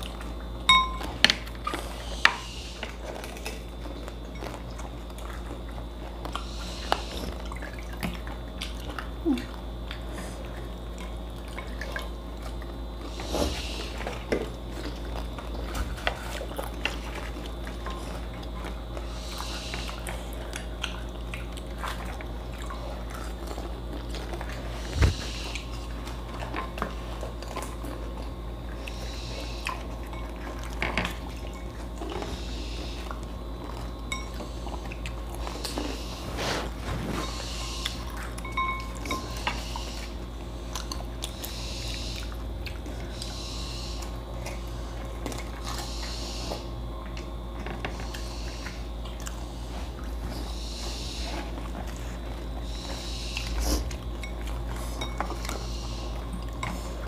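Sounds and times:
crunching food: 0:00.0 - 0:57.0
steady low hum: 0:00.0 - 0:57.0
slurping: 0:34.9 - 0:38.5.

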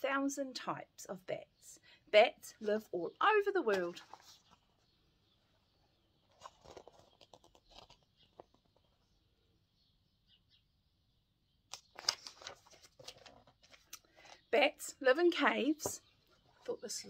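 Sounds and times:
picture book rustling: 0:02.5 - 0:05.0, 0:06.1 - 0:09.2, 0:11.7 - 0:14.5.

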